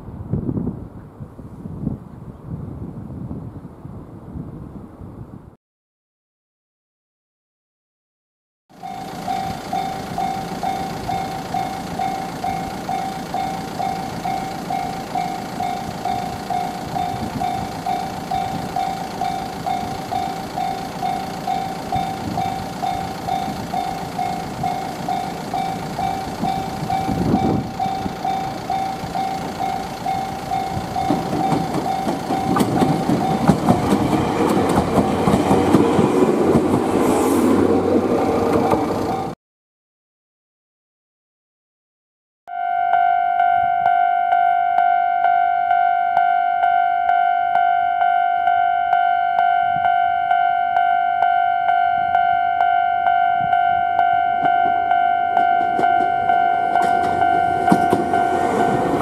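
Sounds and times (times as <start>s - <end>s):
level crossing warning bell ringing: 8.8s - 36.1s, 38.8s - 39.4s, 42.5s - 59.0s
train wheels clattering over points: 10.2s - 36.9s, 55.4s - 59.0s.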